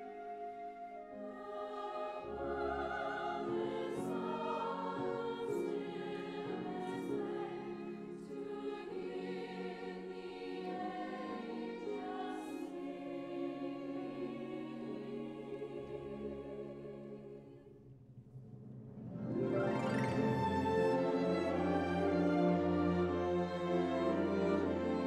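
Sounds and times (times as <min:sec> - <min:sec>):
choir singing with orchestra: 0:00.0 - 0:17.8, 0:18.9 - 0:25.0.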